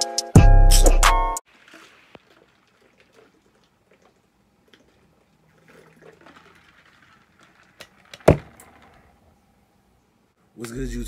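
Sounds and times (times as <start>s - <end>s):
person gulping and swallowing: 1.6s - 7.7s.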